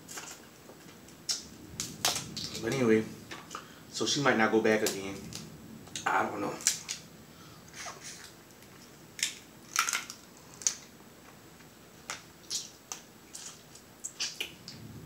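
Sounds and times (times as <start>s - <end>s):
crab shells crunching and cracking: 0.0s - 2.8s, 4.8s - 7.0s, 8.2s - 10.9s.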